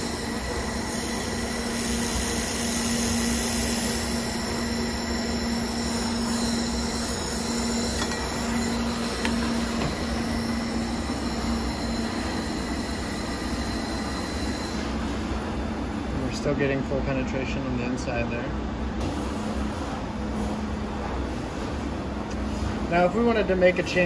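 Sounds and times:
laser welder hiss and hum: 0.0s - 14.9s
constant whining tones: 0.0s - 15.0s.

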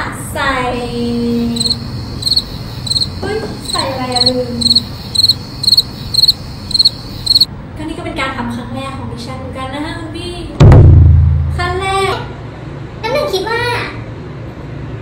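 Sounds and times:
cricket chirping: 1.1s - 7.5s.

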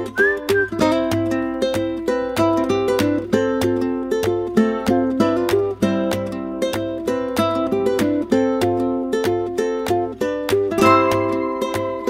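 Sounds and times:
plucked-string tune: 0.0s - 12.0s.

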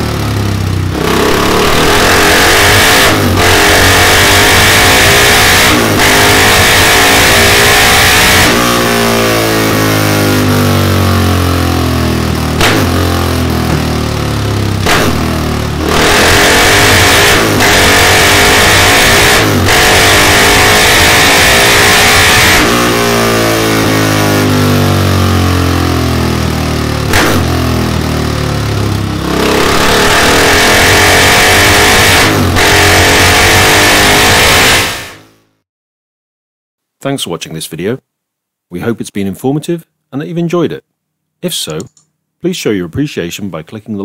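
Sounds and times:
motorcycle engine revving: 0.0s - 35.5s
exhaust cracks: 0.2s - 8.7s, 12.2s - 22.9s, 26.3s - 34.9s.

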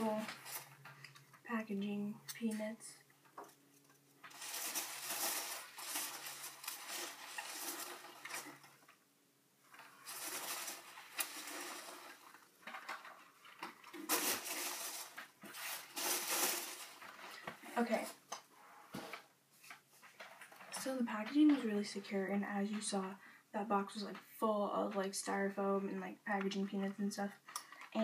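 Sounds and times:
packing peanuts and cardboard rustling: 0.0s - 1.5s, 3.5s - 9.0s, 9.7s - 18.2s.

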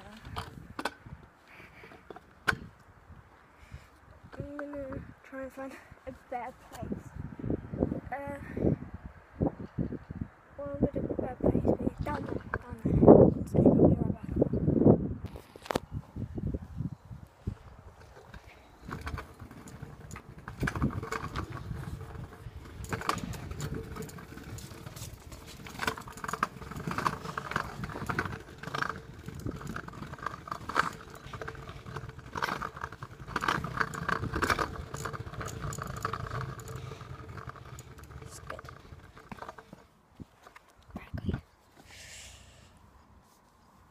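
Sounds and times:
scooter rattles and clicks: 0.0s - 2.8s, 4.2s - 6.9s, 11.6s - 12.8s, 17.5s - 41.3s
scooter wheels rumbling on pavement: 0.0s - 2.8s, 10.7s - 13.2s, 15.3s - 41.4s.

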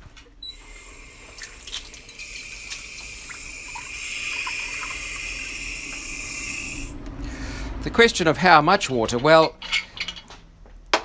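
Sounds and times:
water filling metal jug: 0.6s - 7.0s.

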